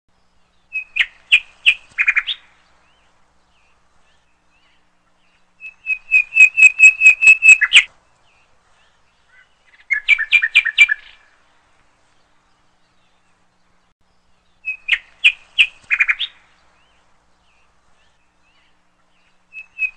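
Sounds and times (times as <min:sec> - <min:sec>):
hornbill calling: 0:05.6 - 0:07.9.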